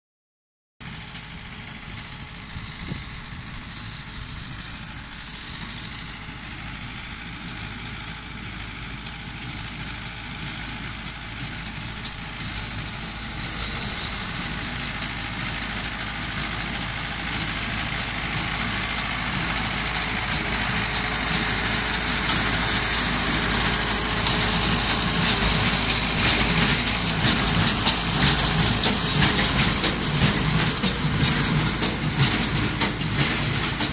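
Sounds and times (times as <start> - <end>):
tractor engine running: 0.8 - 33.9
baler mechanical clatter: 9.9 - 33.9.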